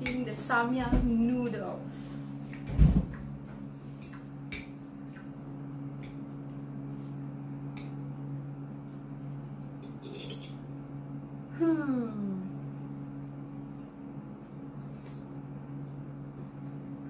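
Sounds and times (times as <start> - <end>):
steady low hum: 0.0 - 17.0
fork clinking and scraping on plate: 9.8 - 10.6.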